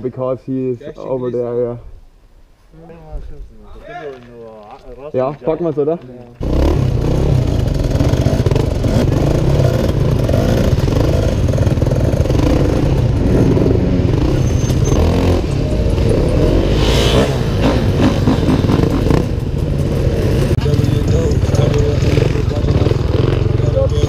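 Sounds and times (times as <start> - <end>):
dirt bike engine revving: 6.4 - 24.0.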